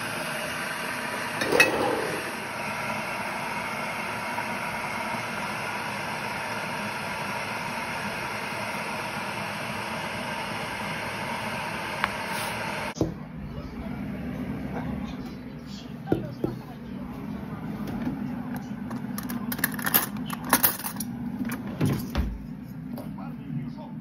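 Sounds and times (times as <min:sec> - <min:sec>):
kettle heating water hiss: 0:00.0 - 0:13.0.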